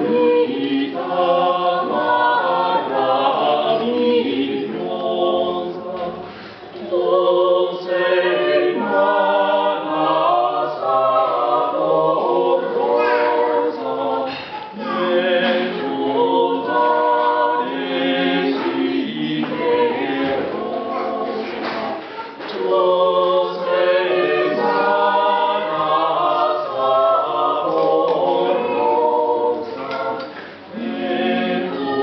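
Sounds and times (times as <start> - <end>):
mixed choir singing in harmony: 0.0 - 32.0.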